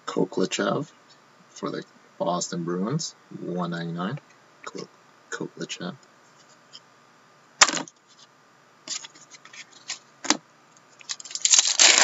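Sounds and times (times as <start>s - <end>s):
foil wrapper crinkling: 11.0s - 12.0s.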